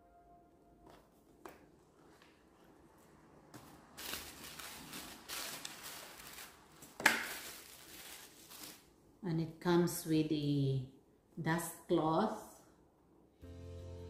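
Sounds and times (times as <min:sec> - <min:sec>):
cardboard and cloth rustling: 0:00.9 - 0:08.9.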